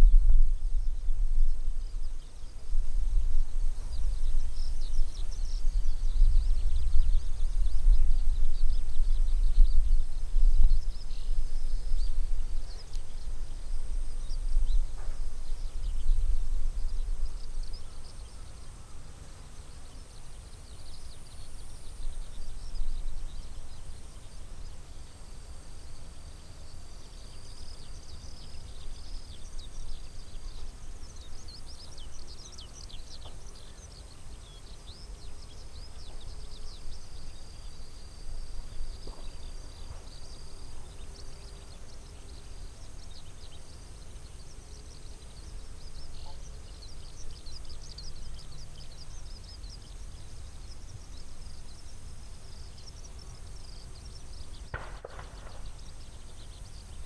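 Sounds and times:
low wind rumble: 0.0s - 25.6s
faint blank shot crack: 54.7s - 55.8s.

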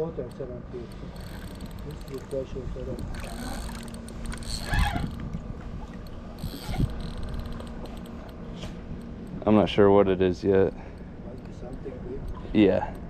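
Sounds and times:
fishing reel noise: 0.8s - 5.3s, 6.0s - 8.3s.

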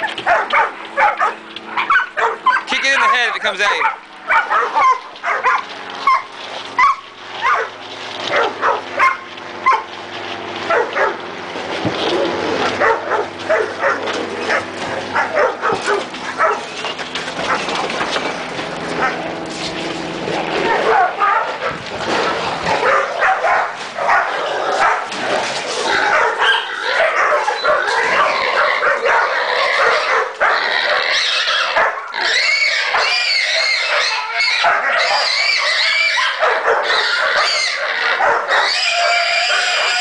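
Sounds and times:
dogs barking: 0.0s - 9.9s, 10.6s - 11.3s, 12.0s - 19.4s, 20.3s - 40.0s
hog squealing and grunting: 20.0s - 40.0s.

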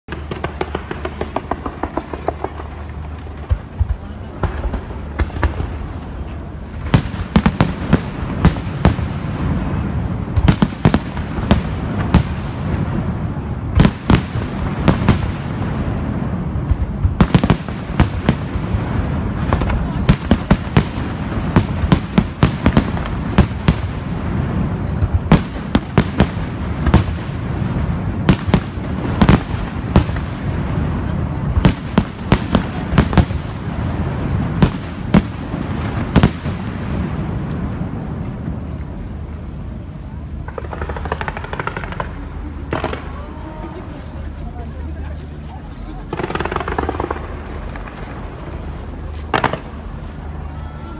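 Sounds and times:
steady low rumble: 0.1s - 50.9s.

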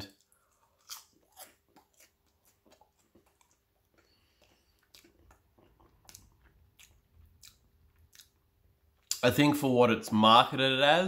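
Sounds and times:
faint room hum: 0.0s - 11.0s
chewing clicks: 0.2s - 8.4s.

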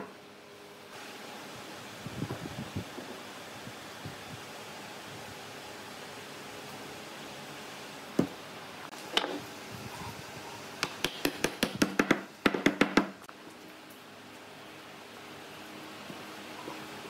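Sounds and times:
hammer tapping on wood: 10.8s - 13.2s.

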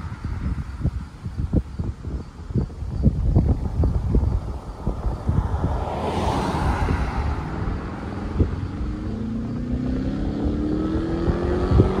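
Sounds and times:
wind buffeting microphone: 0.0s - 12.0s
pickup truck passing: 3.4s - 12.0s
vehicle engine accelerating: 3.4s - 12.0s.

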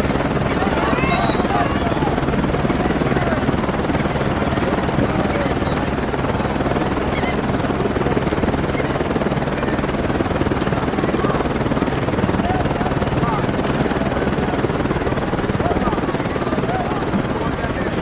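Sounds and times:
distant shouts: 0.4s - 3.6s.

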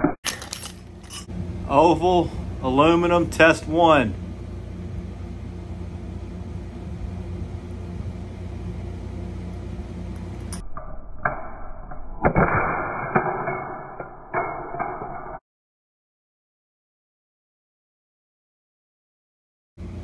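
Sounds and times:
low hum: 0.0s - 15.4s.

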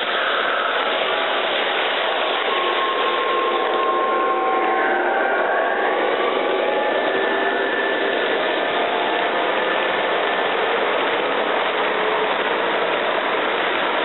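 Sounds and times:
faint motor whine: 0.0s - 14.0s
model train wheels rolling on track: 0.0s - 14.0s.

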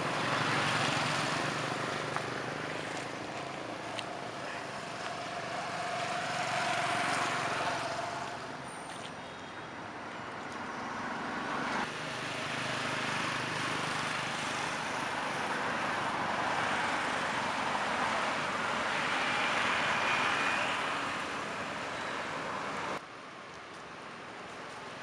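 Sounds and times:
passing motor vehicle: 0.0s - 9.1s, 10.3s - 23.0s.

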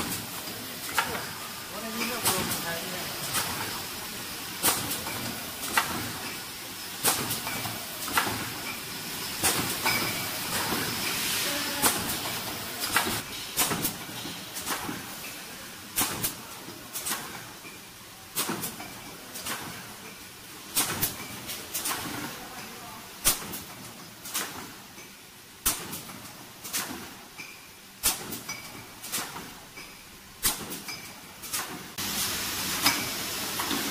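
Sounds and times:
steady machine hiss: 0.0s - 18.3s, 32.0s - 33.9s
printing machine clacking: 0.9s - 4.0s.

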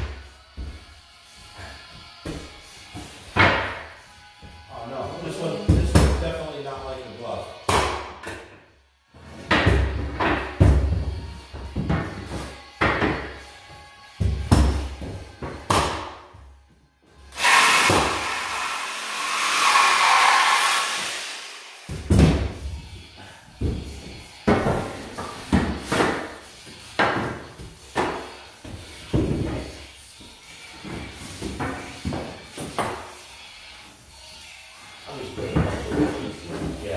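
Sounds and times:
cordless power tool running: 17.4s - 21.9s.

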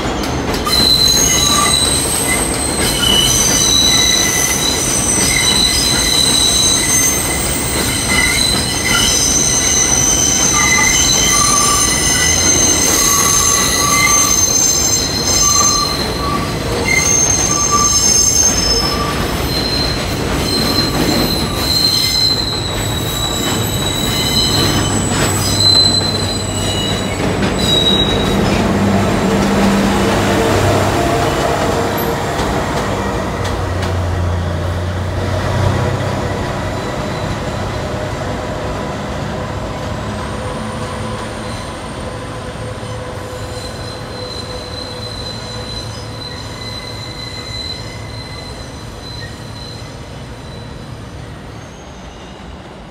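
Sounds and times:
train wheel and rail rumble: 0.0s - 52.9s
train wheels squealing on rail: 0.0s - 52.9s.

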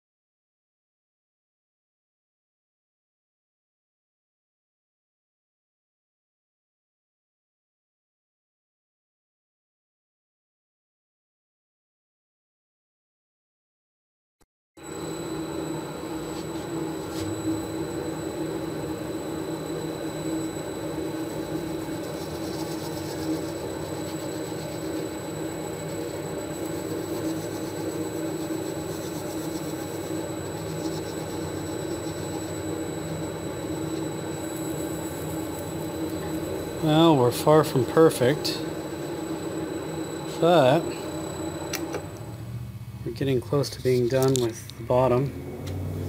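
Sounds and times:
wood lathe humming with high whine: 14.8s - 46.0s
hand sanding: 21.2s - 32.6s.

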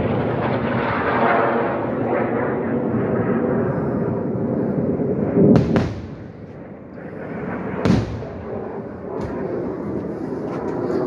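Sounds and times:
steady rushing roar: 0.0s - 11.0s
distant explosion booms: 5.5s - 6.7s, 7.7s - 9.6s.

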